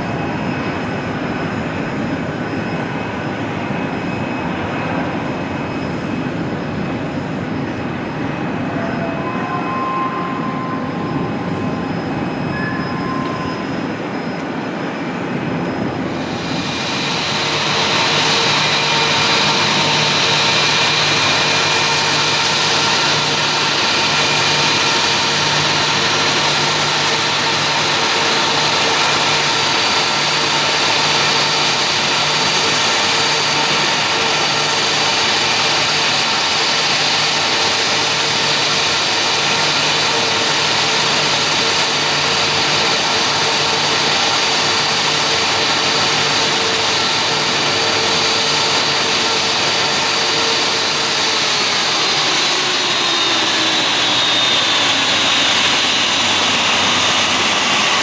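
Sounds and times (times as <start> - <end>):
jet engines idling: 0.0 - 58.0
thin high whistle: 8.8 - 14.6.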